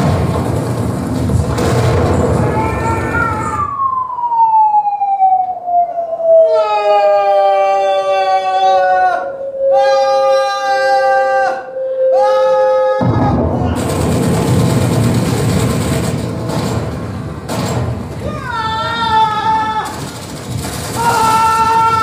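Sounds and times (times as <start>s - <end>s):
burst of noise: 0.0s - 4.1s, 13.0s - 22.0s
sliding pitched tone: 11.6s - 18.5s.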